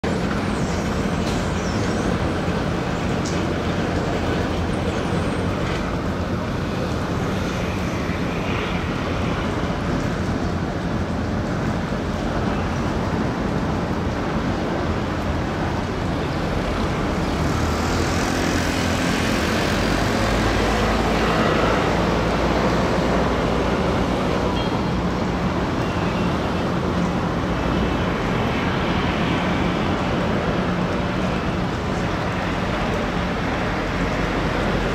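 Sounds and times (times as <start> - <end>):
ferry engines rumbling: 0.0 - 34.9.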